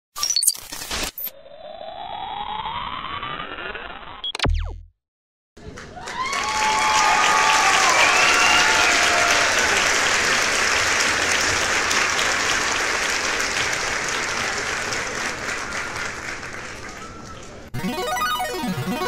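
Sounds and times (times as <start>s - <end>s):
crowd applauding: 5.6s - 17.8s
crowd cheering: 5.6s - 19.0s.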